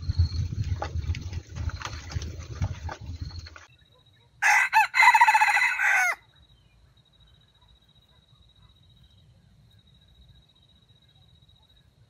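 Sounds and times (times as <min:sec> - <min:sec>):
rooster crowing: 0:04.4 - 0:06.3.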